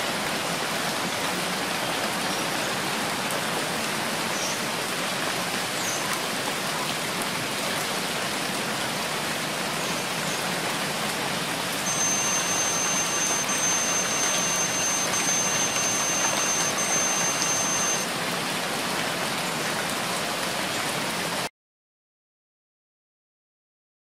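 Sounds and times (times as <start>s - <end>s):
steady rain falling: 0.0s - 21.5s
electronic alarm beeps: 11.8s - 18.1s.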